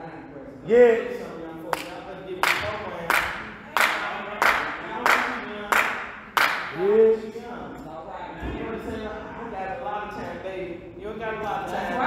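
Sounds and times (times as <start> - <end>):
group clapping in rhythm: 1.7 - 6.9.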